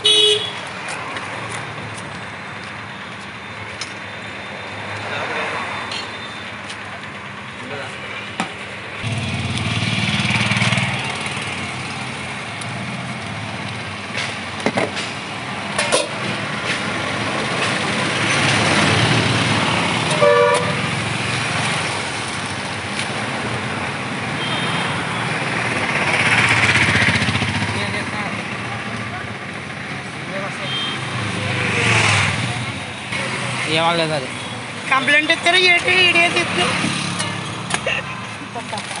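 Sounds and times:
vehicle horn toot: 0.0s - 0.6s, 20.1s - 20.8s, 24.4s - 25.0s
passing road traffic: 0.0s - 39.0s.

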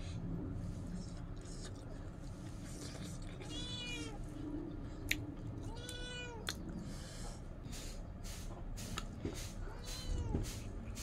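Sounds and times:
cat meowing: 3.4s - 4.2s, 5.7s - 6.5s, 9.6s - 10.5s.

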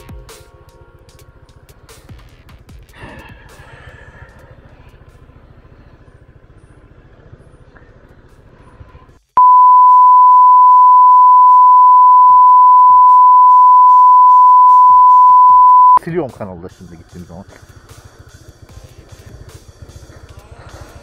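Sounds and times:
censor bleep tone: 9.4s - 16.0s.

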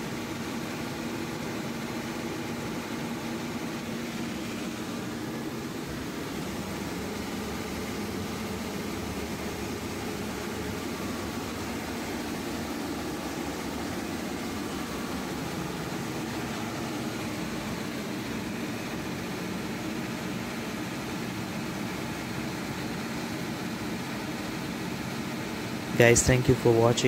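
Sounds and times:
diesel generator engine running: 0.0s - 27.0s.

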